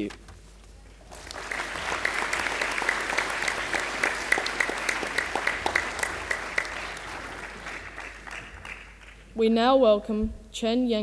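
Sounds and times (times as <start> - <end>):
audience applauding: 1.0 - 9.3.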